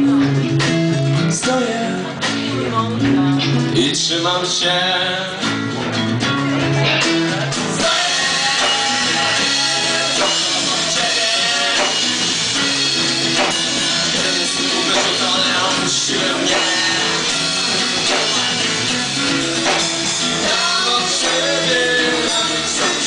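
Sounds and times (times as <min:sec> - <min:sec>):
person singing: 0:00.0 - 0:05.5, 0:06.6 - 0:23.0
electric guitar: 0:00.0 - 0:23.0
drum kit and cymbals: 0:05.3 - 0:23.0.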